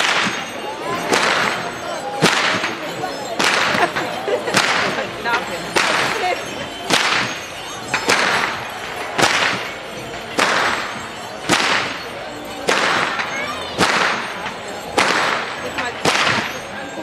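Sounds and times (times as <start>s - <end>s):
whip cracks with echo: 0.0s - 0.4s, 1.1s - 2.8s, 3.4s - 3.8s, 6.9s - 7.4s, 8.1s - 8.6s, 9.2s - 9.7s, 10.4s - 12.0s, 12.7s - 14.4s, 15.0s - 16.6s.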